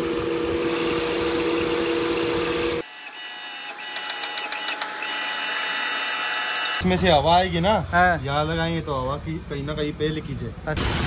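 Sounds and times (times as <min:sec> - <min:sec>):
small machine motor humming: 0:00.0 - 0:06.8.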